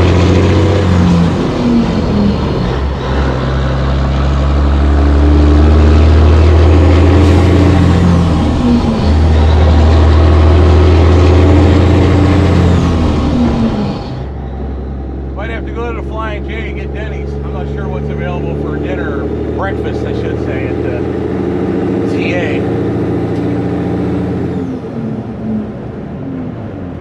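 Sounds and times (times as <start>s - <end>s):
diesel truck engine accelerating: 0.0s - 27.0s.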